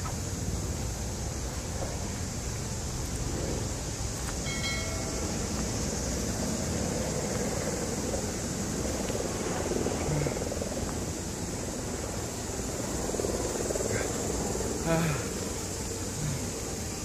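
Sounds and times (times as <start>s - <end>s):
steady high hiss: 0.0s - 17.0s.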